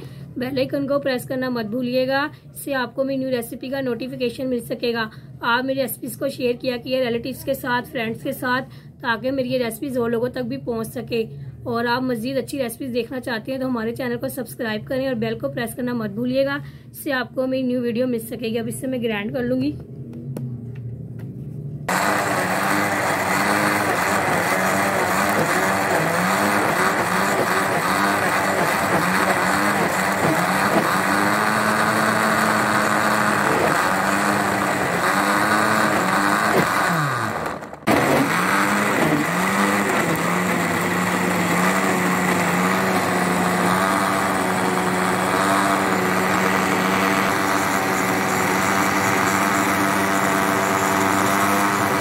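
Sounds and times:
blender motor running: 0:21.9 - 0:52.0.

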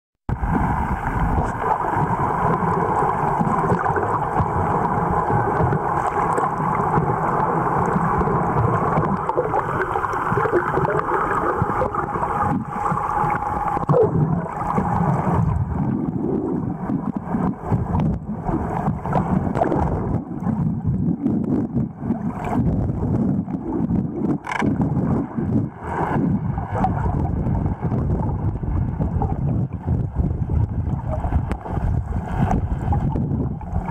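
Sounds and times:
boat motor hum underwater: 0:00.3 - 0:33.9
underwater moving water: 0:00.3 - 0:33.9
sharp clicks: 0:24.4 - 0:24.7.

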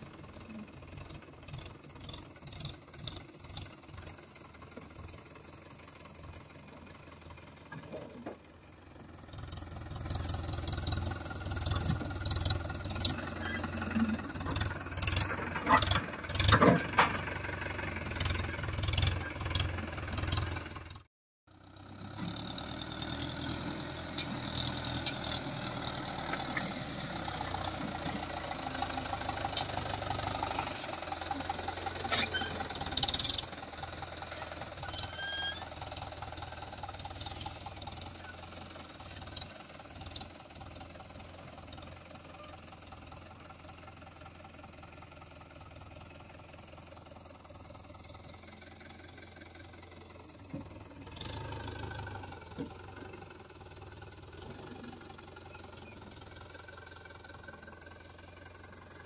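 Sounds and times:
tractor diesel engine running: 0:00.0 - 0:59.0.

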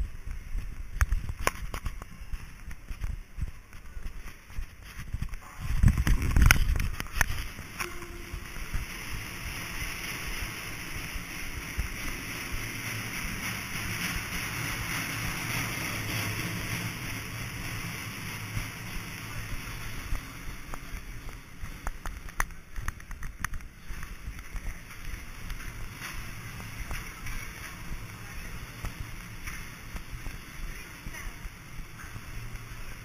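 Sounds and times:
airport hall rushing ambience: 0:00.0 - 0:33.0.

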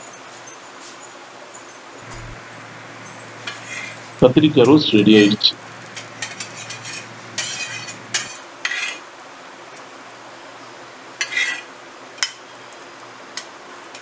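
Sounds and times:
faint sizzle: 0:02.0 - 0:08.4
metal spatula scraping griddle: 0:05.8 - 0:08.9
spatula clinking on steel plate: 0:05.9 - 0:08.4.

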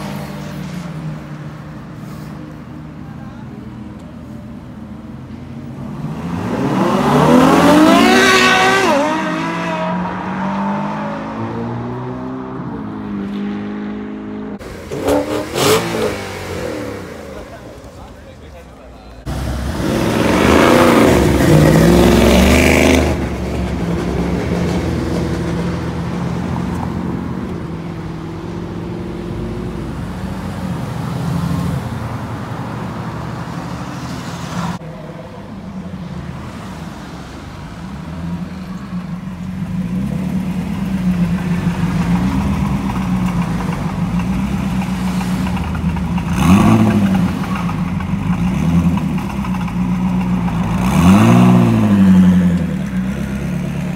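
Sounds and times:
car engine revving: 0:05.7 - 0:17.9, 0:19.2 - 0:26.6, 0:39.5 - 0:53.9.

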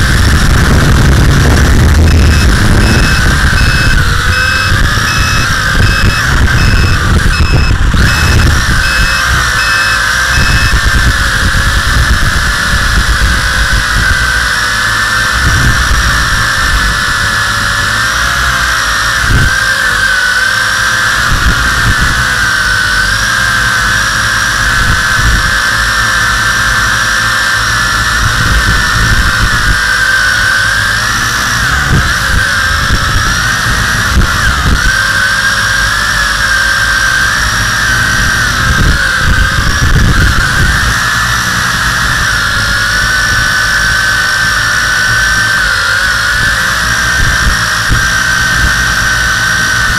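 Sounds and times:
low rumble: 0:00.0 - 0:20.0
quadcopter motors whining: 0:00.0 - 0:49.9.

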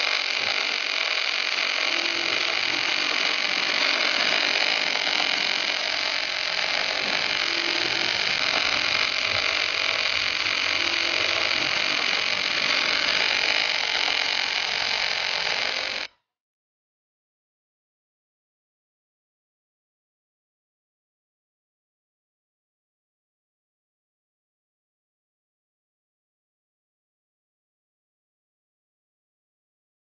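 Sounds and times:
welding arc hissing: 0:00.0 - 0:16.1.

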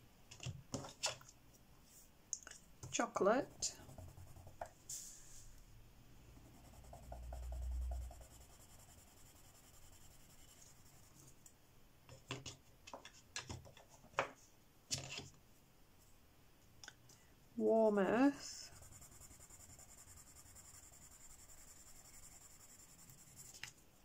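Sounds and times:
pencil scratching on paper: 0:03.4 - 0:04.6, 0:06.4 - 0:11.2, 0:18.6 - 0:23.7.

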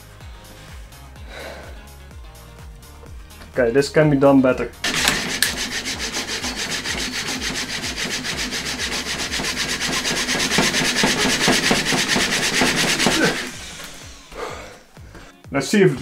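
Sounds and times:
printer carriage rubbing on rods: 0:04.8 - 0:14.3.

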